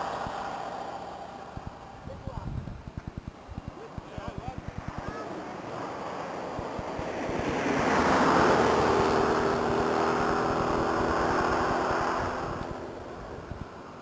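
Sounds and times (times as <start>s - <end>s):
vehicle passing on road: 0.0s - 14.0s
wind buffeting microphone: 0.0s - 14.0s.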